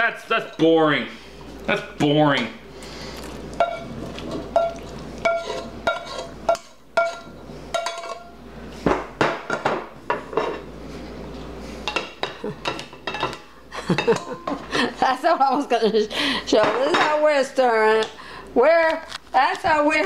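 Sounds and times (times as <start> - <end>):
spoon knocking on metal pots: 4.5 - 8.3.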